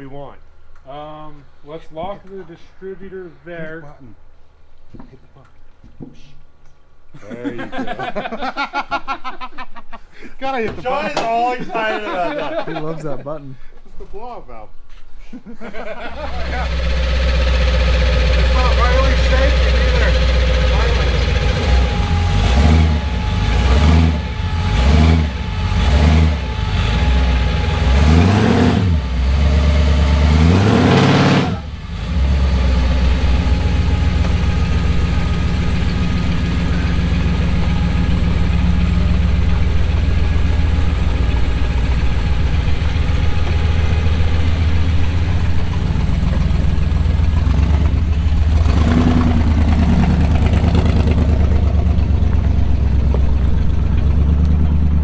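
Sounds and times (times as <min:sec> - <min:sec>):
truck engine revving: 0:16.1 - 0:55.0.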